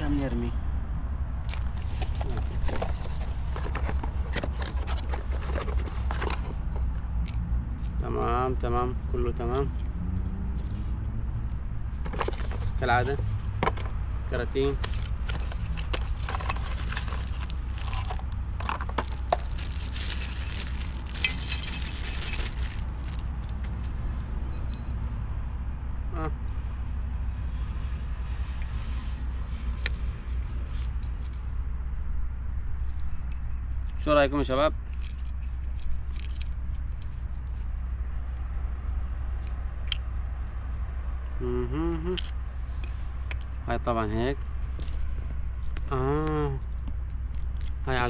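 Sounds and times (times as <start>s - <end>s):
steady low rumble: 0.0s - 48.0s
packaging rustling: 1.5s - 6.7s, 12.0s - 12.8s, 14.8s - 23.2s
person speaking: 2.0s - 3.4s, 12.7s - 13.3s, 45.8s - 46.7s
packaging clicks and cracks: 14.8s - 23.2s.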